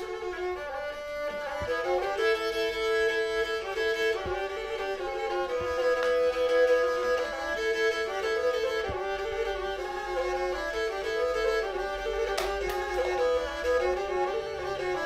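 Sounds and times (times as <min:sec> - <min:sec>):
bowed fiddle playing tune: 0:00.0 - 0:15.0.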